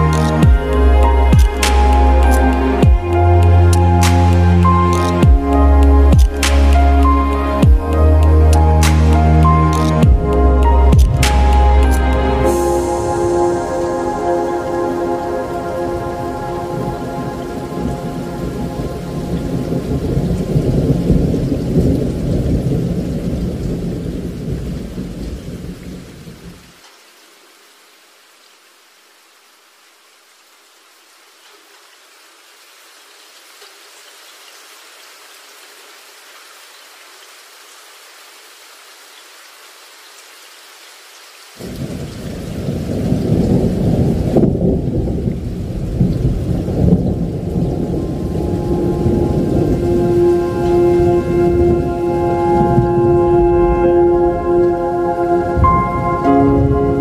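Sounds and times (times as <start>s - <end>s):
held musical note: 0.0s - 20.1s, 47.7s - 57.0s
heavy rain: 0.0s - 57.0s
thunder rumbling: 7.6s - 26.6s, 41.6s - 57.0s.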